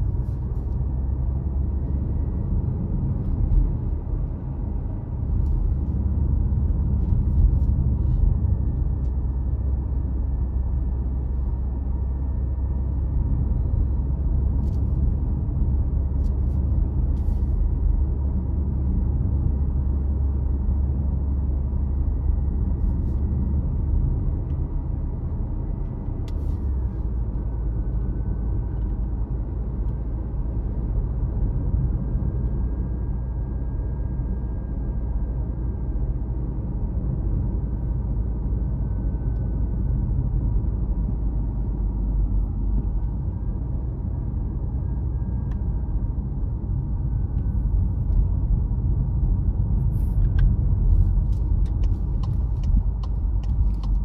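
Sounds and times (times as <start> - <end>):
car engine and tyre rumble: 0.0 - 54.0
faint whine: 21.5 - 54.0.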